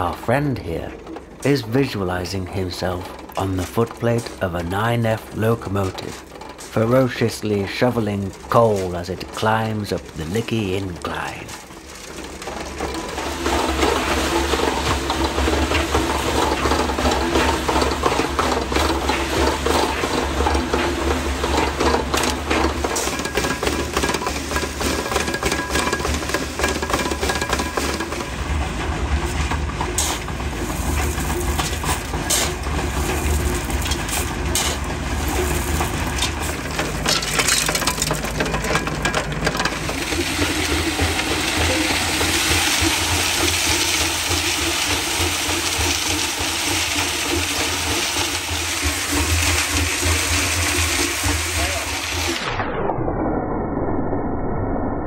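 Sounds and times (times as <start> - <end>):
gravel churning in mixer drum: 0.0 - 52.6
tractor engine running: 0.0 - 52.6
stones clattering: 3.3 - 50.6
shovel scraping into gravel: 29.9 - 39.0.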